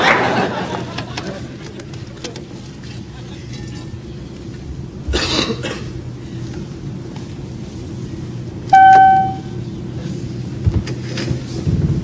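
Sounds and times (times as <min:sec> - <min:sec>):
low cabin hum: 0:02.0 - 0:11.0
bright chime ding: 0:08.8 - 0:09.6.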